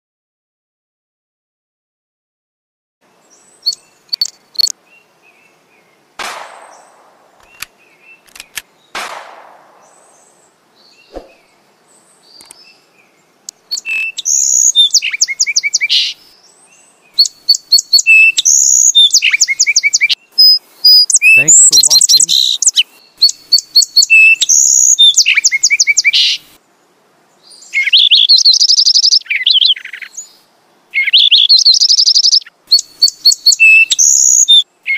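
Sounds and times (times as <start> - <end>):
sparrows chirping and trilling: 3.2 - 6.0, 9.8 - 26.6, 27.5 - 30.4, 31.0 - 34.7
dull thump: 11.1 - 11.4
whooshes: 11.1 - 11.5.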